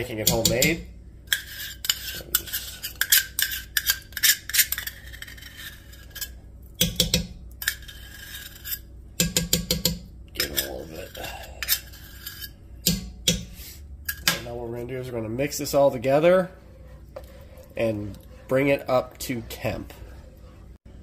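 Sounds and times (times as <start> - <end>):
metal spoon scraping metal cup: 0.3 - 6.4, 7.6 - 8.9, 10.4 - 12.6.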